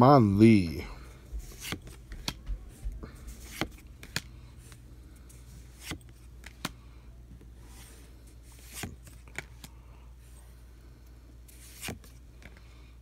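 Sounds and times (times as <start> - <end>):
faint low hum: 0.0 - 13.0
cards sliding rustle: 1.3 - 6.8, 7.4 - 10.4, 11.4 - 12.7
cards snapping: 3.3 - 4.3, 11.5 - 12.5.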